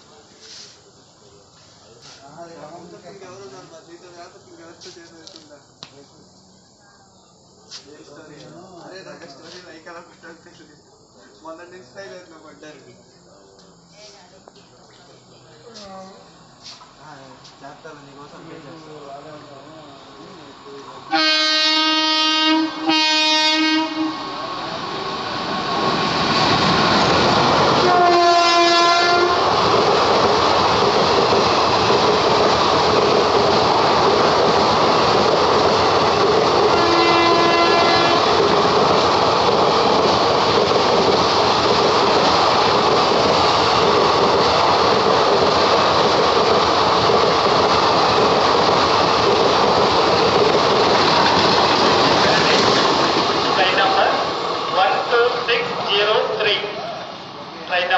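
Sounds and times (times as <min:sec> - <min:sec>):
locomotive horn blasts: 0:21.1 - 0:24.2, 0:27.8 - 0:29.4, 0:36.7 - 0:38.4
train wheels clattering on rails: 0:25.6 - 0:55.0.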